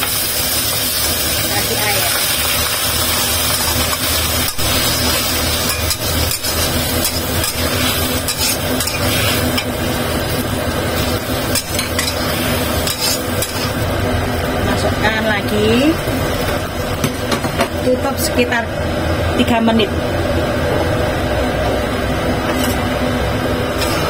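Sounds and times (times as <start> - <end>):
spatula scraping wok: 0.0 - 14.4, 22.4 - 23.0, 23.7 - 24.0
shallots sizzling in a wok: 0.0 - 18.3, 23.6 - 24.0.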